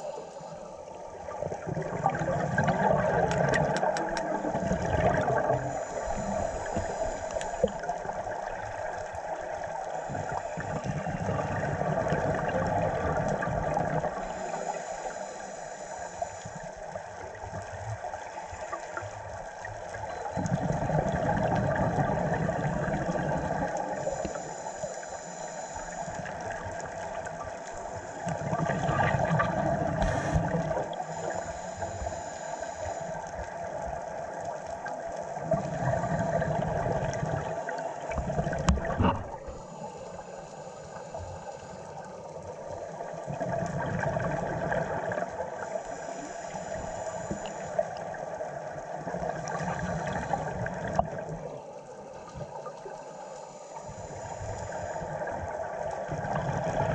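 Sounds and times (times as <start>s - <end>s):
regulator inhale hiss: 0.0s - 1.0s, 5.6s - 7.9s, 14.3s - 16.8s, 24.0s - 26.3s, 30.0s - 33.2s, 39.4s - 42.1s, 45.7s - 47.8s, 51.7s - 55.1s
underwater hum: 0.0s - 56.9s
exhaled bubbles rushing: 1.0s - 14.3s, 20.4s - 24.3s, 26.2s - 31.0s, 35.3s - 39.5s, 42.9s - 45.6s, 54.4s - 56.9s.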